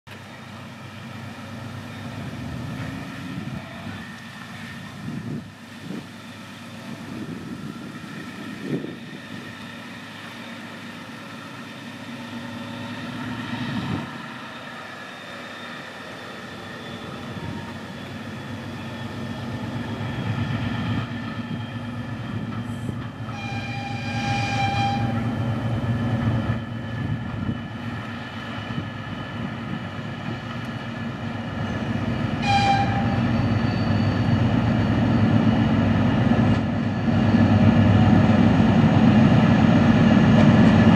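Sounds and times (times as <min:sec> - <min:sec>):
diesel locomotive engine drone: 0:00.1 - 0:40.9
locomotive horn: 0:23.3 - 0:25.4, 0:32.4 - 0:34.0.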